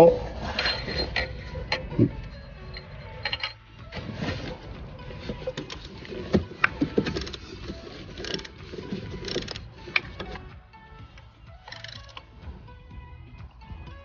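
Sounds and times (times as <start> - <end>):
socket ratchet clicking: 6.6 - 10.4, 11.6 - 12.3.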